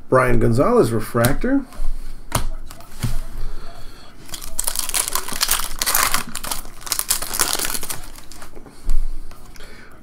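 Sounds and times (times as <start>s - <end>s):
wrapper crinkling as torn open: 4.3s - 8.5s.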